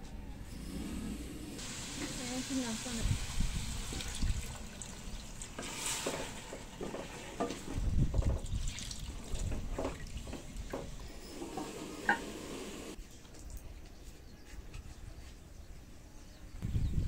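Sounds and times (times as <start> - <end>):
water pouring into a metal pot: 1.6 - 6.8, 7.5 - 10.4
wooden spatula scraping a pot: 5.6 - 7.8.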